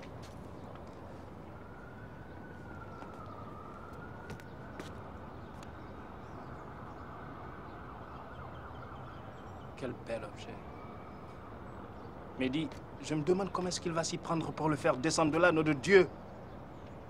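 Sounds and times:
distant siren wailing: 0:00.0 - 0:16.9
low traffic rumble: 0:00.0 - 0:17.0.

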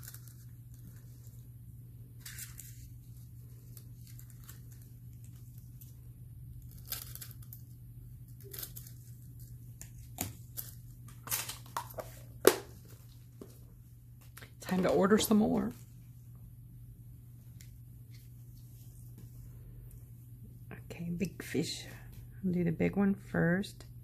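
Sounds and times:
plastic foil crinkling: 0:00.0 - 0:01.4, 0:02.2 - 0:12.3
low hum: 0:00.0 - 0:22.5.

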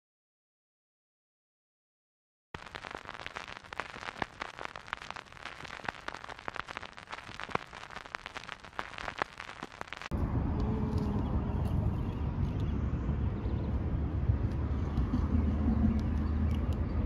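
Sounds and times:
vinyl record crackle: 0:02.6 - 0:10.2.

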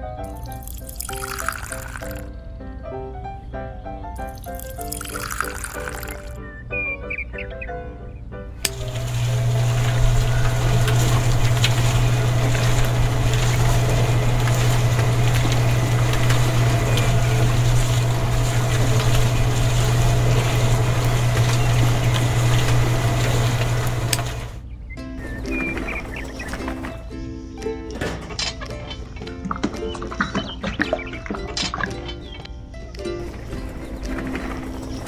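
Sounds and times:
concrete mixer drum rattling: 0:08.6 - 0:24.6, 0:25.2 - 0:27.1, 0:33.2 - 0:35.0
electric motor humming: 0:08.7 - 0:24.6.

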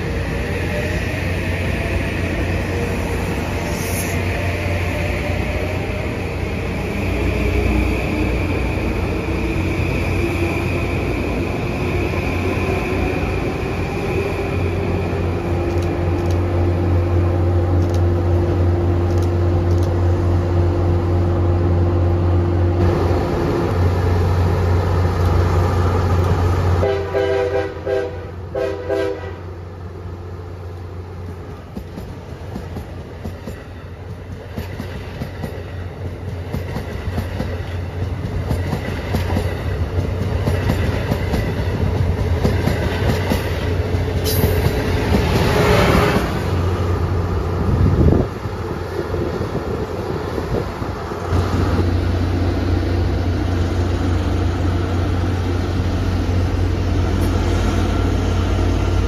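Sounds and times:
electric train rumble and whine: 0:00.0 - 0:59.0
train rumbling on rails: 0:00.0 - 0:59.0
train horn short blasts: 0:26.8 - 0:29.5.

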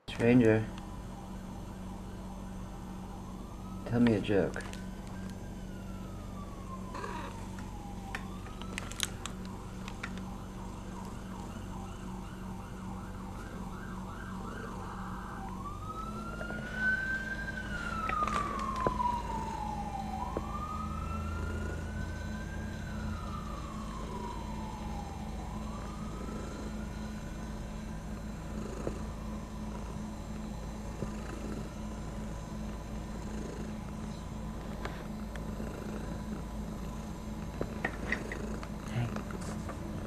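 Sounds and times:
emergency vehicle siren: 0:00.0 - 0:40.0.

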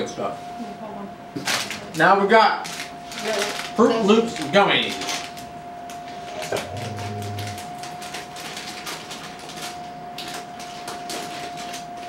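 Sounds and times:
faint steady whine: 0:05.3 - 0:10.4.

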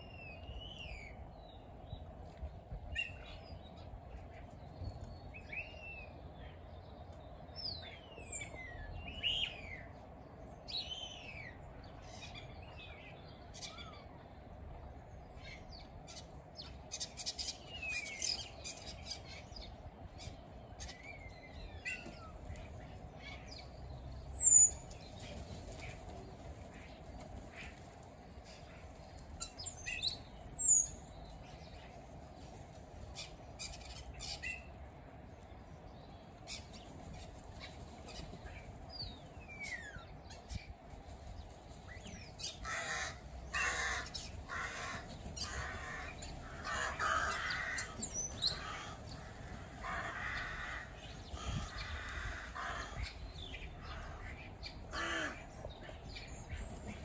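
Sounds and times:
birds whistling and chirping: 0:24.2 - 0:25.1
harsh bird calls: 0:42.2 - 0:57.0.

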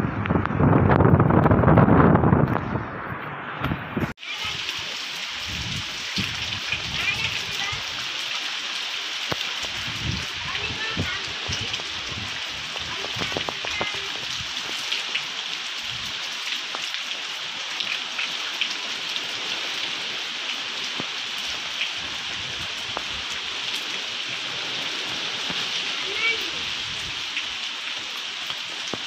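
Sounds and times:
low wind gusts rumbling: 0:00.0 - 0:08.2, 0:09.5 - 0:16.3, 0:18.8 - 0:27.7
heavy rain hissing: 0:04.0 - 0:29.0
rain drop ticks: 0:05.6 - 0:08.4, 0:09.2 - 0:19.2, 0:20.9 - 0:24.0, 0:25.0 - 0:26.5, 0:28.2 - 0:29.0.

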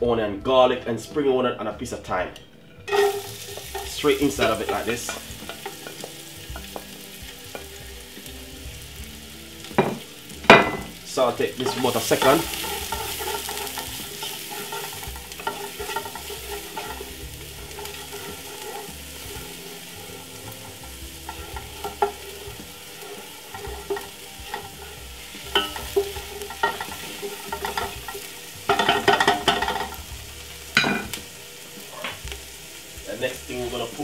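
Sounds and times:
onion and garlic frying in oil: 0:02.8 - 0:34.0
wooden spoon scraping a pot: 0:02.9 - 0:07.8, 0:11.4 - 0:30.0
spoon clicking on pan: 0:11.7 - 0:17.1, 0:23.1 - 0:24.8, 0:25.5 - 0:30.0.

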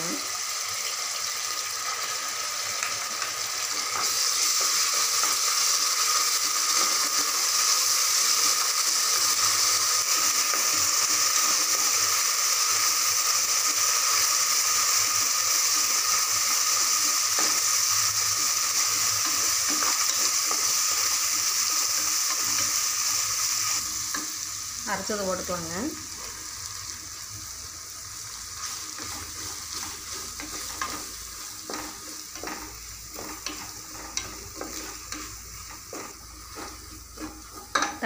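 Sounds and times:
vegetables sizzling in oil: 0:00.0 - 0:38.0
spoon stirring: 0:28.6 - 0:38.0.

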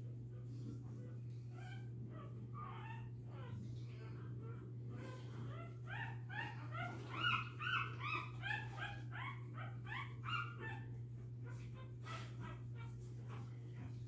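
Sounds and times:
puppies squealing and whimpering: 0:01.5 - 0:04.0, 0:04.9 - 0:13.5.

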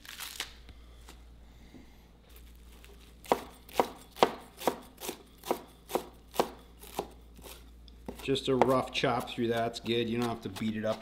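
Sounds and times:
knife chopping on cutting board: 0:03.2 - 0:11.0.

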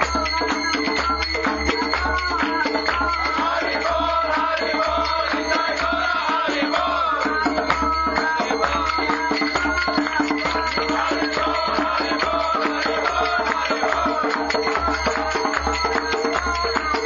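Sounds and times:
hand drum beating: 0:00.0 - 0:17.0
chanted singing into microphone: 0:01.8 - 0:17.0.

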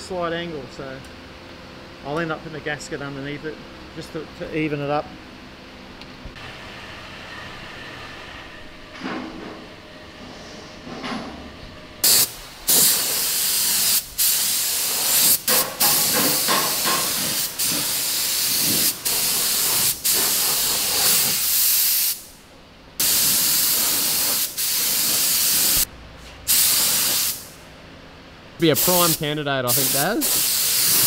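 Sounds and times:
paint spray gun hissing: 0:12.0 - 0:22.3, 0:23.0 - 0:25.9, 0:26.5 - 0:27.6, 0:28.8 - 0:31.0.

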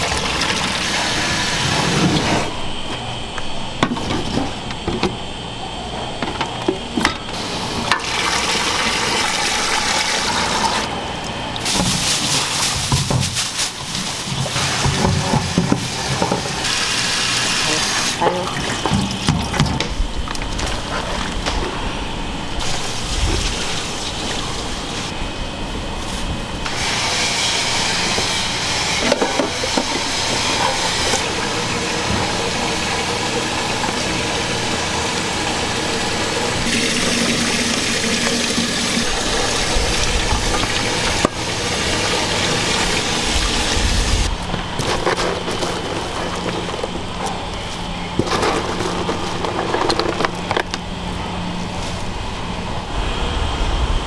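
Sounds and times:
water running: 0:07.4 - 0:13.0, 0:28.0 - 0:44.3
utensils clattering against pots: 0:28.8 - 0:33.0.

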